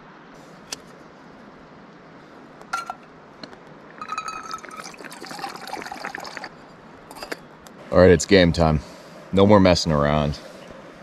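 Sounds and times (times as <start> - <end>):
water pouring into pot: 4.0 - 6.6.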